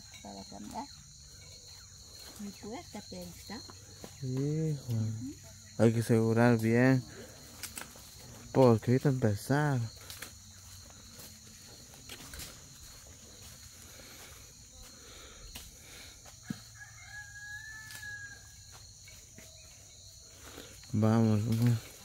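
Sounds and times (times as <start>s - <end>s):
high insect drone: 0.0s - 22.0s
footsteps in dry leaves: 6.5s - 22.0s
faint rooster crowing: 16.3s - 19.8s.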